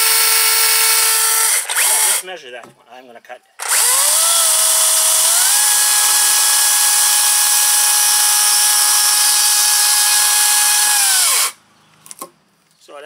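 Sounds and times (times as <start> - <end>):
electric chainsaw cutting wood: 0.0 - 2.2, 3.6 - 11.6.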